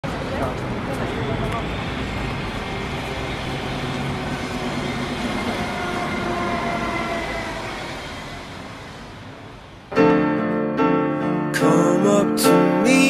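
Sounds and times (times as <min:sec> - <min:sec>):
city rumble and hiss: 0:00.0 - 0:10.0.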